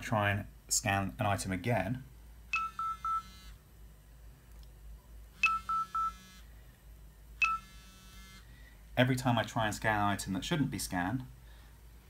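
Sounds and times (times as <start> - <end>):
barcode scanner error beeps: 5.4 - 6.3, 7.4 - 7.9
vibration motor buzz: 7.6 - 8.5.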